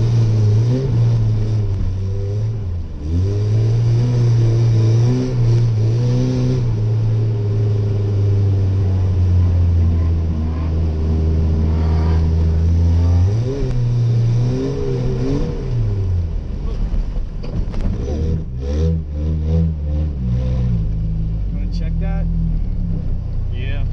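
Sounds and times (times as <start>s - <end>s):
pickup engine running hard: 6.6s - 19.1s.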